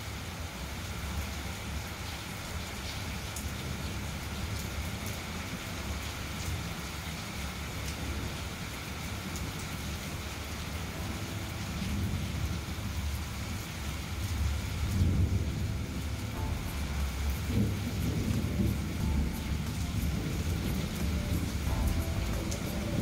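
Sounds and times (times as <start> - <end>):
steady rain falling: 0.0 - 23.0
thunder rumbling: 11.0 - 23.0.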